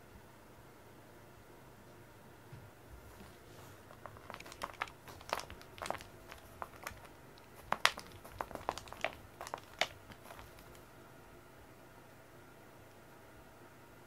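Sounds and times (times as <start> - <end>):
cat toy wand slapping foam mats: 3.8 - 10.8.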